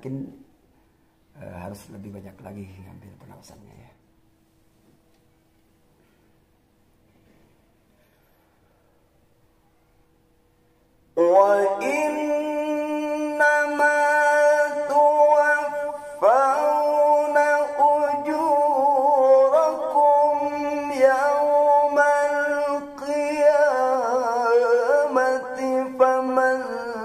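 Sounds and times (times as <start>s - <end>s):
man reciting melodically into microphone: 0.0s - 0.4s, 1.3s - 4.0s, 11.2s - 27.0s.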